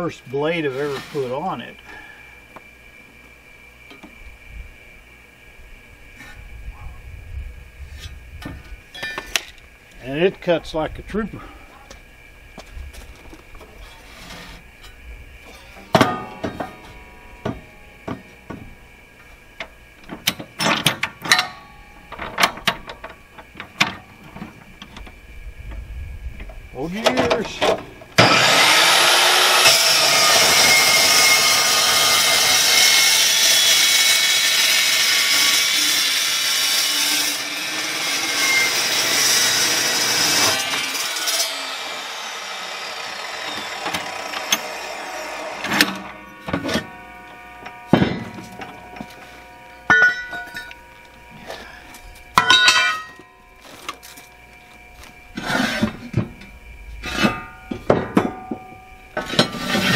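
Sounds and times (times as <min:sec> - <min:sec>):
chop saw cutting steel: 0:00.6 - 0:01.4, 0:28.2 - 0:49.2, 0:59.2 - 0:59.9
steel pieces clanking: 0:08.9 - 0:09.6, 0:13.8 - 0:17.9, 0:43.6 - 0:54.3
saw blade spinning down: 0:28.2 - 0:47.0.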